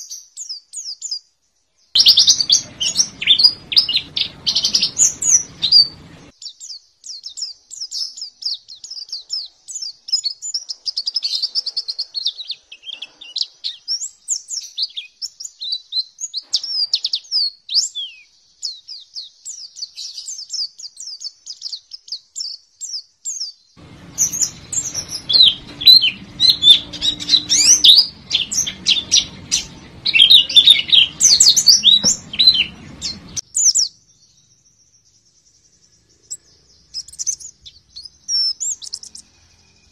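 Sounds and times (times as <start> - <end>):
bird twittering song: 0.0 - 39.9
low hum: 2.0 - 6.3, 23.8 - 33.4.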